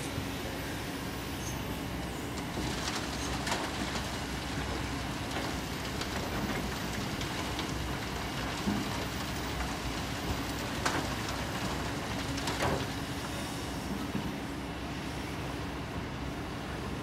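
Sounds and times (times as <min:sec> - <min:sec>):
excavator diesel engine running: 0:01.7 - 0:14.7
soil and stones falling: 0:02.4 - 0:13.1.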